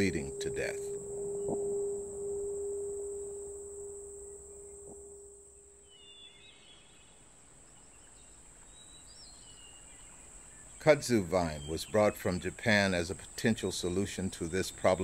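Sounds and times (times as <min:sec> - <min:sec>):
low held tone: 0:00.0 - 0:06.4
high insect drone: 0:00.0 - 0:06.6, 0:10.3 - 0:15.0
bird chirps: 0:00.0 - 0:12.6.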